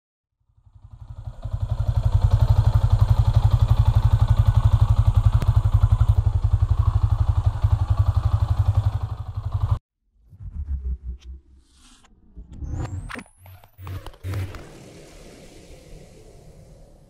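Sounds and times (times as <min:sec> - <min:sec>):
motorcycle engine idling: 0:00.4 - 0:09.8.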